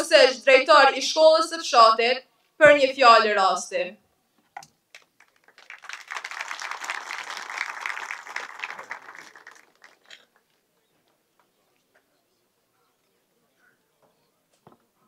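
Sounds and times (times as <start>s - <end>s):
audience applauding: 4.9s - 10.6s.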